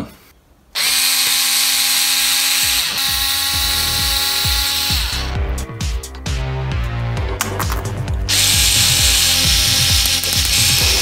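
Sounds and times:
electric screwdriver whining: 0:00.8 - 0:05.4, 0:08.3 - 0:11.0.

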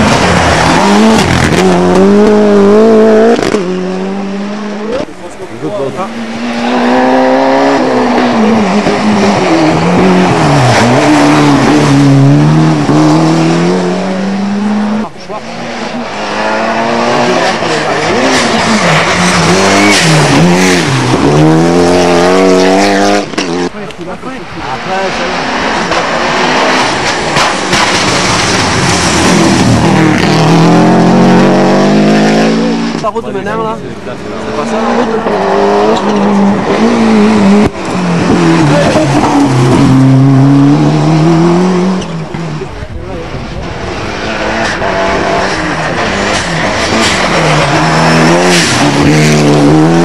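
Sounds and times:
rally car engine passing: 0:00.0 - 0:50.0
road and tyre noise: 0:00.0 - 0:50.0.

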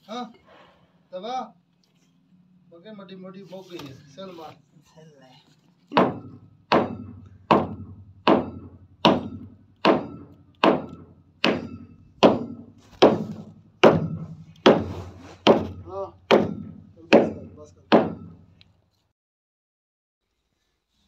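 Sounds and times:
rhythmic pounding with low ring: 0:06.0 - 0:14.9, 0:15.5 - 0:18.5.

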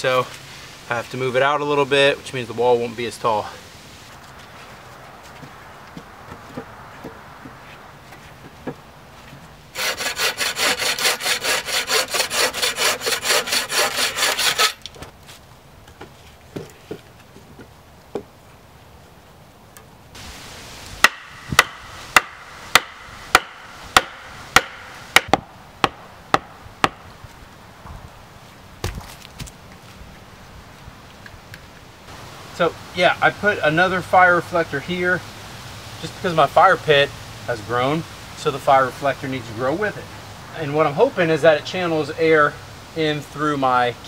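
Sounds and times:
hand saw cutting log: 0:09.7 - 0:14.9, 0:21.0 - 0:25.4
sharp wooden knocks: 0:21.0 - 0:27.0.

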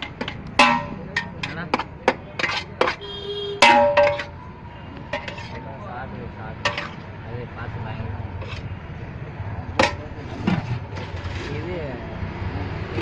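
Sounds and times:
ladle and lids clanking on steel pots: 0:00.0 - 0:04.4, 0:05.1 - 0:05.7, 0:06.6 - 0:07.1, 0:09.7 - 0:11.4.

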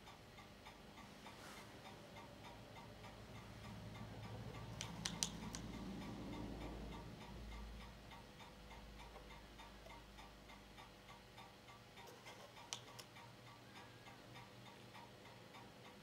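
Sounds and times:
projector low hum: 0:00.0 - 0:16.0
projector ticking: 0:00.0 - 0:16.0.

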